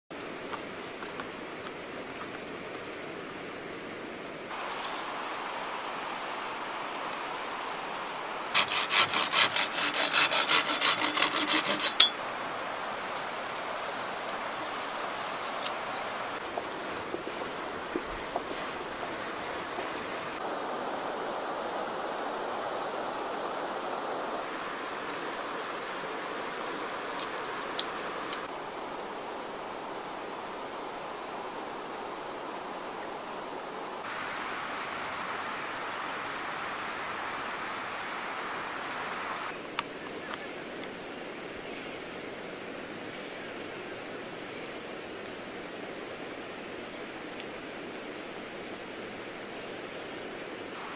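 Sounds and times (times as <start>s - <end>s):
high insect whine: 0.1s - 50.9s
river flowing: 4.5s - 28.5s
rhythmic rasping strokes: 8.6s - 12.1s.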